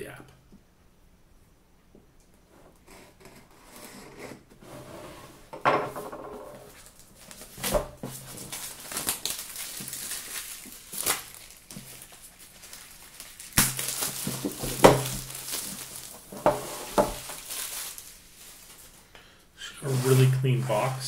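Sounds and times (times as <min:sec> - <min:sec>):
plastic wrapping crinkling: 0:06.7 - 0:19.1.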